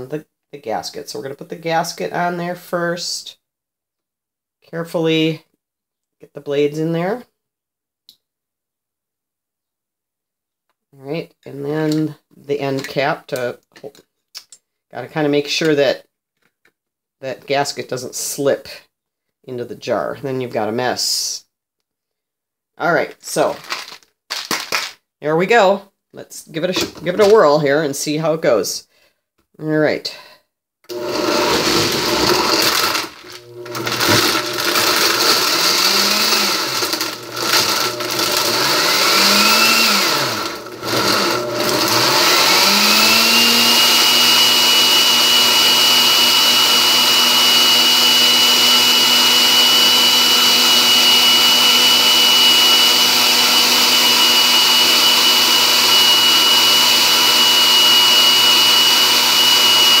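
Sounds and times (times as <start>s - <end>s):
blender motor pulsing and whining: 30.9s - 60.0s.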